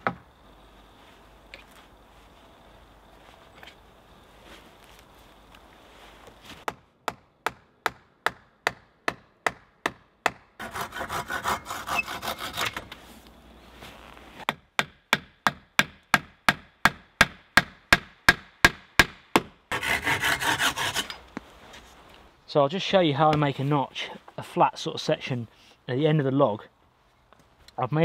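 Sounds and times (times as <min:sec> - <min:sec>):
hand saw cutting wood: 0:10.6 - 0:13.0, 0:19.7 - 0:21.2.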